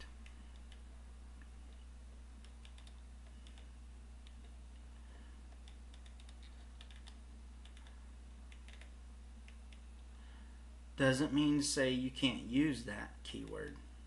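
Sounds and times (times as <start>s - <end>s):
steady low hum: 0.0s - 14.0s
faint computer clicks: 2.4s - 4.9s, 5.5s - 9.9s.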